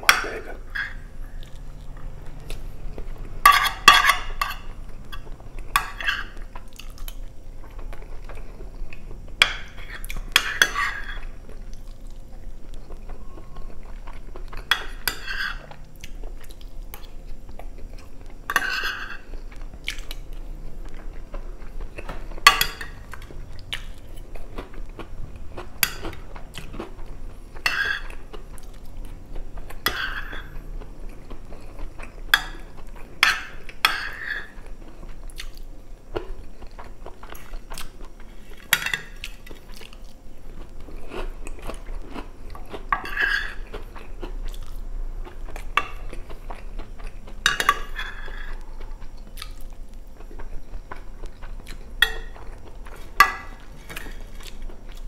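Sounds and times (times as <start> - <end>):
cutlery scraping a glass dish: 5.8 - 6.4, 10.4 - 11.2, 14.7 - 15.6, 18.5 - 19.2, 27.6 - 28.1, 29.8 - 30.5, 33.2 - 34.5, 42.9 - 43.6, 47.5 - 48.5
close-miked chewing: 34.4 - 55.0.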